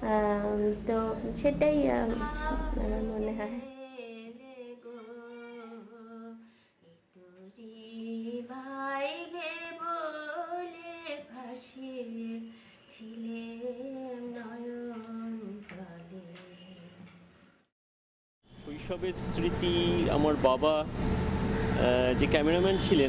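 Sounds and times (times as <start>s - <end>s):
woman singing slow song: 0.0s - 17.2s.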